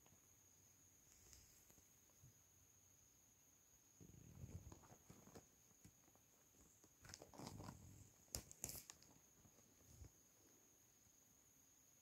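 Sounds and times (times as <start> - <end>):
cats scuffling and rustling: 4.0 - 10.6.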